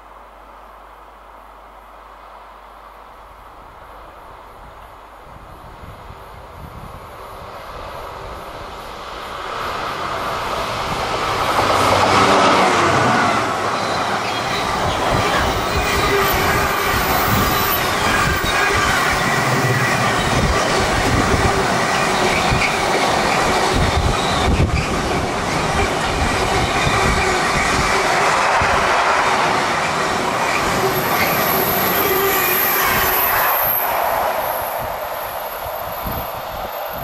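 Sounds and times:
train wheels rumbling on track: 0:03.9 - 0:37.0
wheel squeal: 0:13.7 - 0:27.9, 0:30.4 - 0:33.9.

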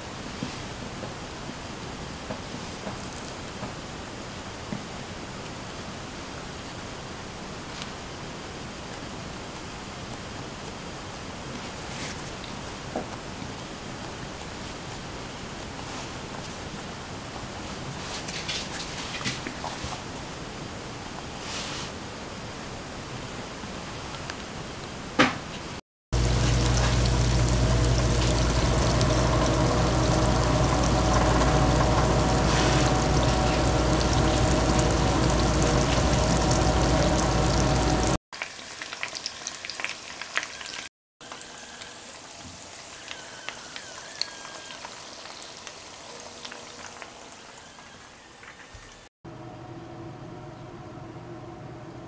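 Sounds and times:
low hum: 0:26.2 - 0:38.2
dough frying in hot oil: 0:26.2 - 0:49.1.

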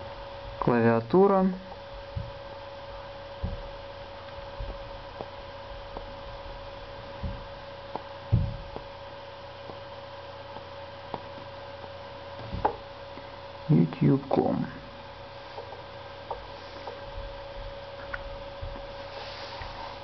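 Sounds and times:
electrical hum: 0:00.0 - 0:20.0
short low thumps: 0:01.8 - 0:09.0.

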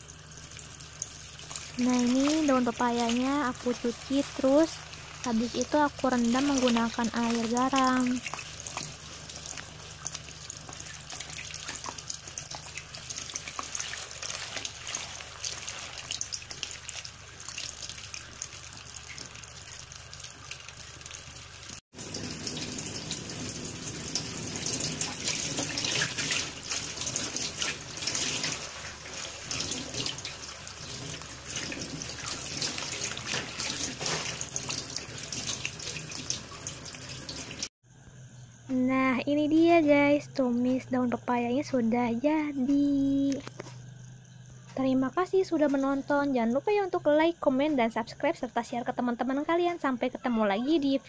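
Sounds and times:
running tap water: 0:00.0 - 0:37.7
hands splashing leaves in water: 0:10.6 - 0:17.6.

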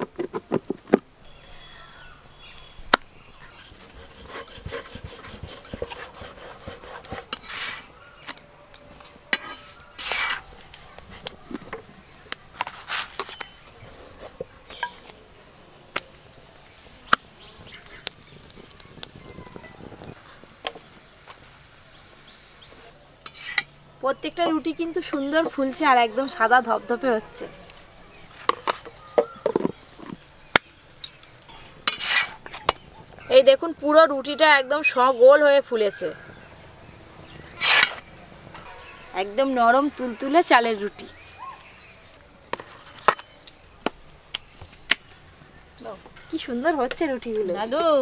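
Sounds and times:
metal spatula on iron griddle: 0:03.5 - 0:07.9, 0:09.3 - 0:10.5, 0:12.5 - 0:13.7, 0:23.2 - 0:23.8, 0:27.8 - 0:32.8, 0:37.5 - 0:38.7.

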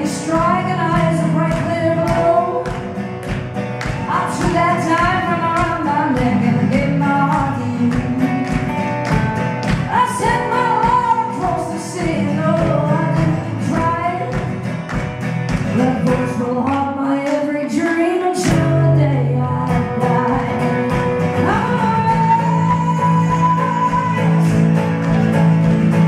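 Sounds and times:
woman singing: 0:00.0 - 0:14.6, 0:15.6 - 0:24.9
strummed acoustic guitar: 0:00.0 - 0:26.0.

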